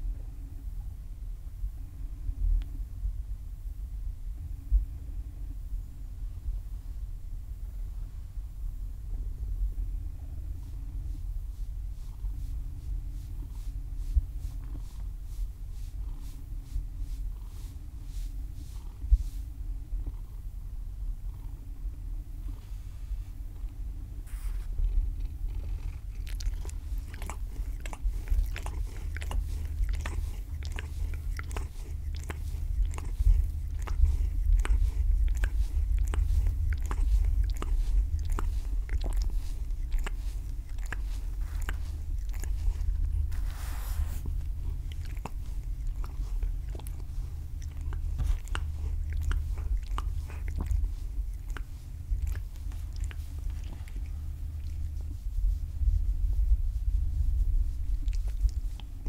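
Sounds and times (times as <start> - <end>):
steady low rumble: 0.0 - 59.0
cat licking fur: 10.0 - 20.5, 24.2 - 59.0.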